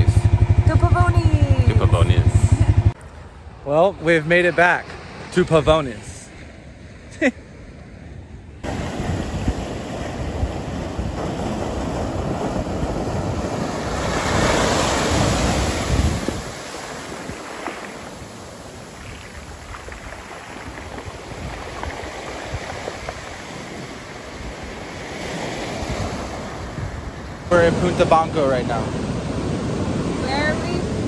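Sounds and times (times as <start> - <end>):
ocean surf breaking: 0.0 - 31.0
wind buffeting microphone: 8.3 - 31.0.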